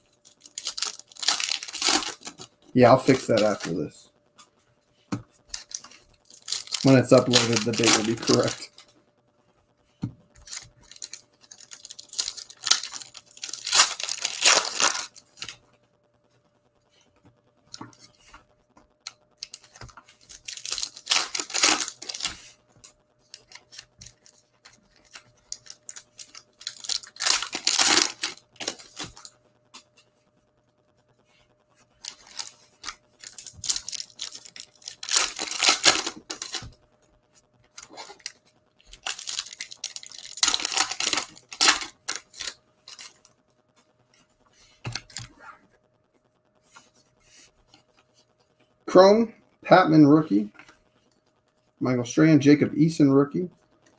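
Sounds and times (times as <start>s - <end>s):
foil wrappers tearing and crinkling: 0.2s - 4.0s, 5.5s - 8.8s, 10.4s - 15.6s, 19.4s - 29.3s, 32.0s - 36.8s, 37.7s - 43.2s.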